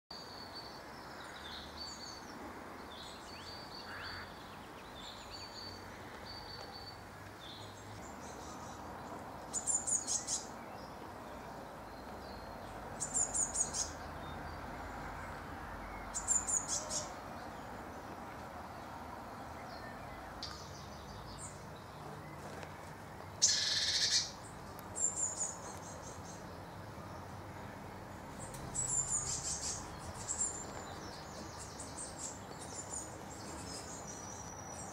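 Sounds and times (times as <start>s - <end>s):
nestlings chirping: 28.3s - 34.9s.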